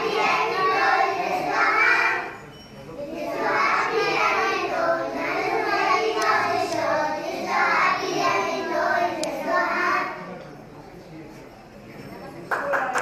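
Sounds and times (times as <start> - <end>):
children singing in unison: 0.0 - 10.2.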